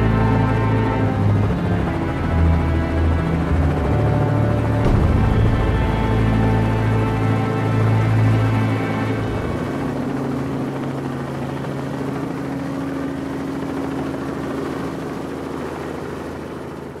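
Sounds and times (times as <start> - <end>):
helicopter engine hum: 0.0 - 17.0
rotor chop: 4.7 - 9.8.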